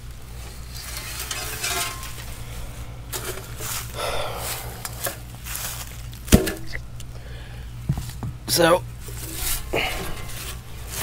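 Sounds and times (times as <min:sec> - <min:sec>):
shovel scraping dry leaves and dirt: 0:00.4 - 0:06.6, 0:09.0 - 0:11.0.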